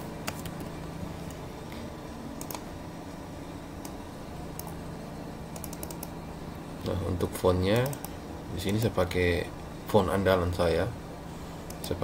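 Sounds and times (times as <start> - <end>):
low steady hum: 0.0 - 12.0
keyboard and mouse clicks: 0.2 - 1.4, 2.4 - 2.7, 3.8 - 4.8, 5.5 - 6.2, 7.8 - 8.9.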